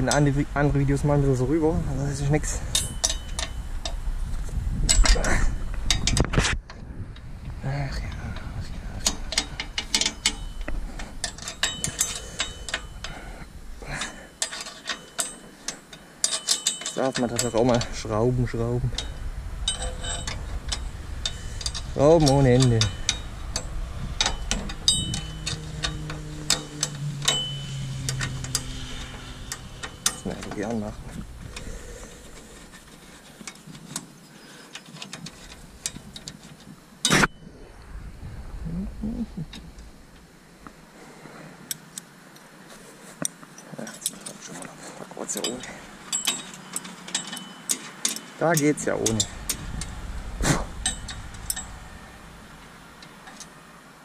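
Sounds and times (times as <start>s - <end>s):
hand tools clinking on metal: 2.3s - 4.0s, 9.0s - 37.4s, 43.2s - 52.2s.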